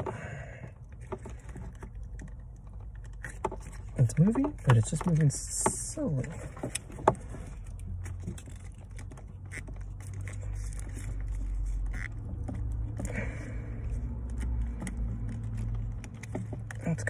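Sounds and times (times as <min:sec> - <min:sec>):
short plastic squeaks: 0:06.3 - 0:13.1.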